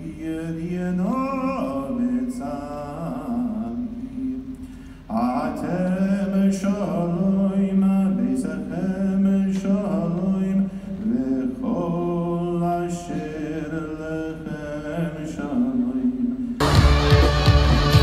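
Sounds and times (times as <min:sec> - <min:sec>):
slow chant-like singing: 0:00.0 - 0:18.0.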